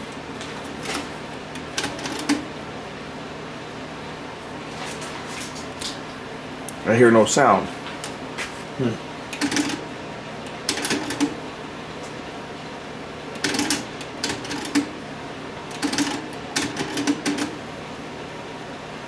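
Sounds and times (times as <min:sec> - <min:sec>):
tape mechanism clicking and clunking: 0:10.5 - 0:11.4.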